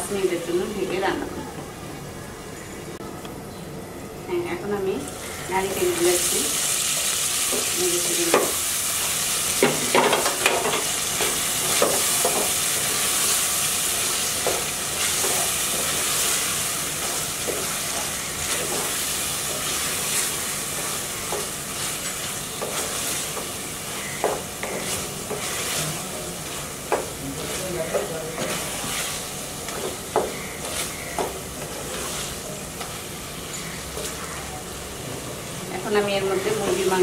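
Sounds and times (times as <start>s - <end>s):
food sizzling in hot oil: 5.0s - 37.0s
wooden spatula scraping a pan: 17.0s - 33.0s.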